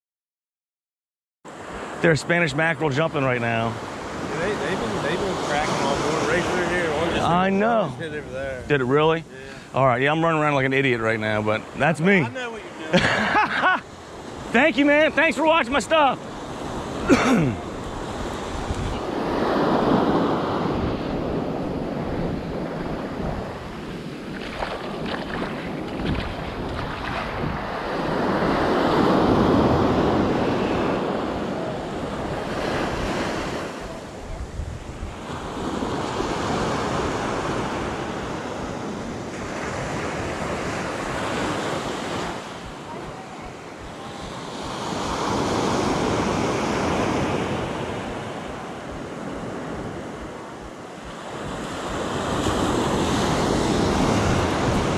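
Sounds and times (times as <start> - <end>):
ocean surf breaking: 1.5 - 54.9
wind buffeting microphone: 16.4 - 33.1, 33.9 - 39.1, 48.8 - 54.9.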